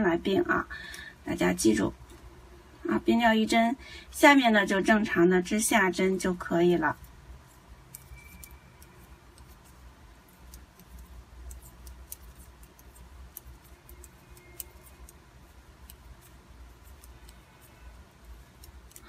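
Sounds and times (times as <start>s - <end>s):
low steady hum: 0.0s - 19.0s
knitting needles clicking: 7.8s - 19.0s.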